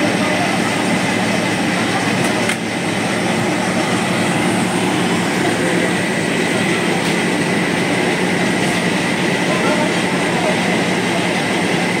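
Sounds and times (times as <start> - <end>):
vehicle engine rumble: 0.0 - 12.0.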